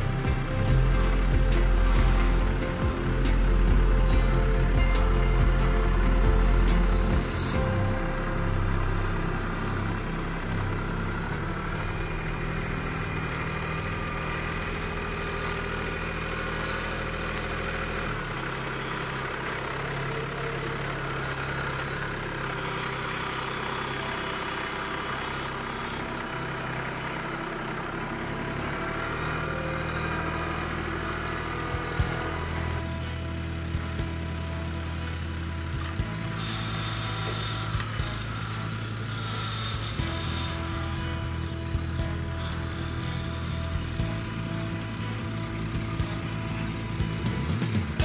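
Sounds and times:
tractor diesel engine running: 0.0s - 48.0s.

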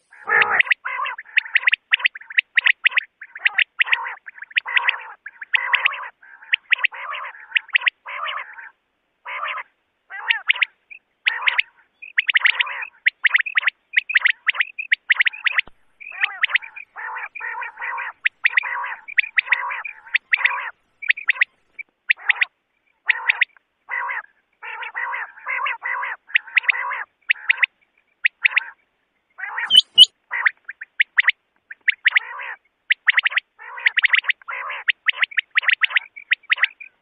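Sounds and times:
quail calls: 0.0s - 28.8s, 29.4s - 37.0s.

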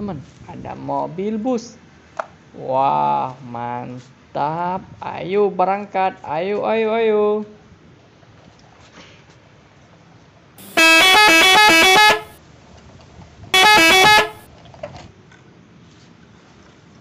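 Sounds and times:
melodic bus horn: 10.6s - 12.4s, 13.6s - 14.4s.

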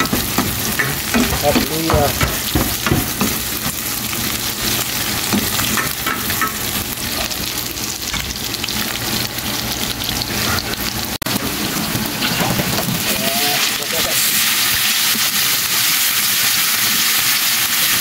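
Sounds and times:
food sizzling in hot oil: 0.0s - 18.0s.

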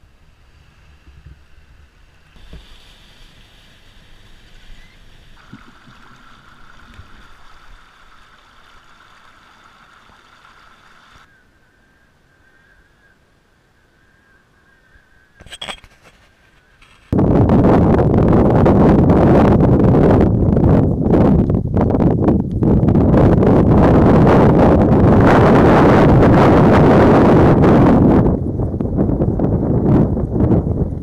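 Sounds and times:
steady high whine: 1.5s - 15.8s
flood water running: 2.2s - 11.3s.

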